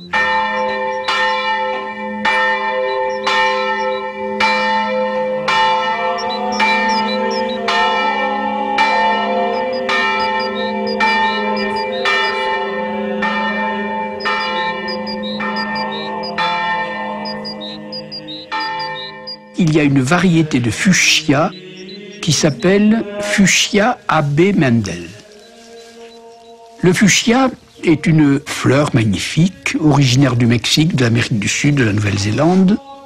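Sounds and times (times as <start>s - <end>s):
church bell tolling: 0.0s - 23.8s.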